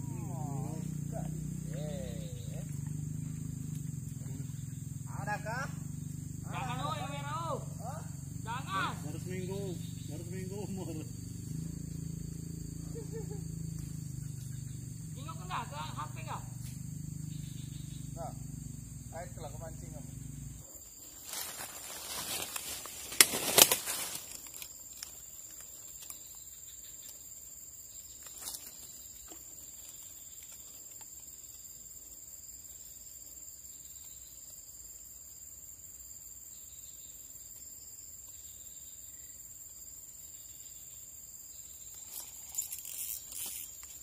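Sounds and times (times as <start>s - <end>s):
insects chirping: 0.0s - 44.0s
rustling: 21.0s - 25.0s.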